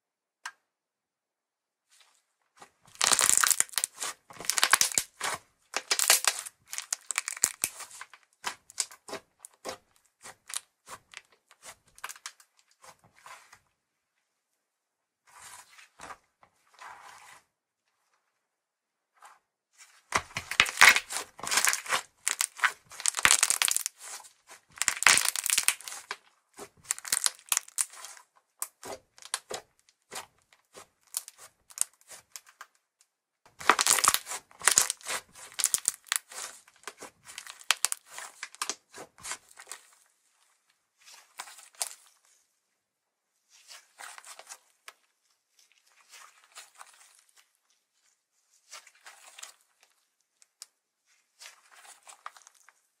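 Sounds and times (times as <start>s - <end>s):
slime crackling and popping: 2.9s - 10.6s, 20.2s - 24.1s, 24.7s - 26.2s, 26.8s - 28.1s, 33.6s - 39.4s.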